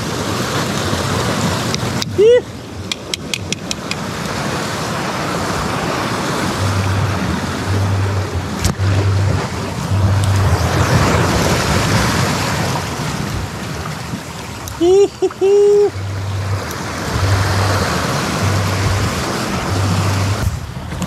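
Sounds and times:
surf washing over rocks: 0.0s - 21.0s
wind on microphone: 0.0s - 21.0s
sharp click: 2.9s - 4.0s.

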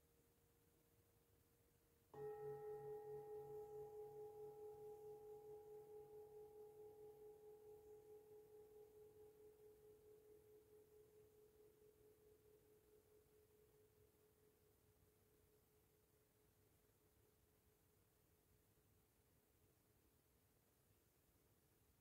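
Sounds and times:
singing bowl ringing: 2.2s - 12.0s.

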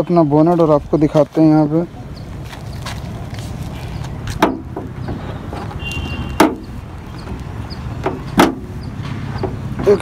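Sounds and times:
car bonnet knocks and clunks: 4.3s - 5.7s, 6.4s - 6.7s, 8.0s - 8.8s.

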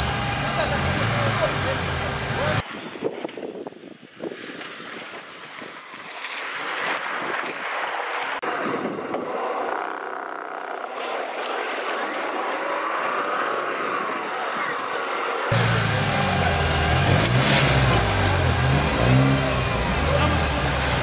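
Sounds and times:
car engine running under load: 0.0s - 2.6s, 15.2s - 21.0s.

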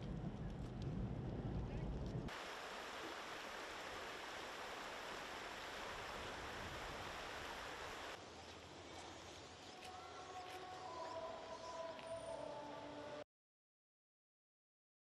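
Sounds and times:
river flowing: 2.3s - 9.6s.

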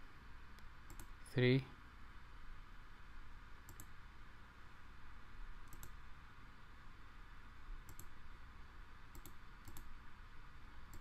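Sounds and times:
faint steady hiss: 0.0s - 11.0s
computer mouse button clicking: 3.7s - 3.9s, 5.7s - 6.0s, 7.9s - 8.1s, 9.1s - 9.9s.

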